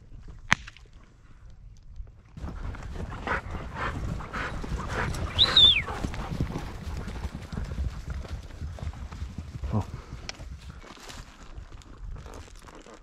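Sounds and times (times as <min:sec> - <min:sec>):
dog yelping: 0:05.3 - 0:06.0.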